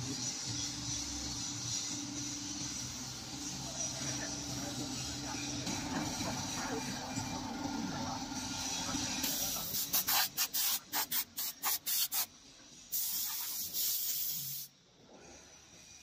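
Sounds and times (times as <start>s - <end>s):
hydraulic hisses: 12.9s - 14.8s.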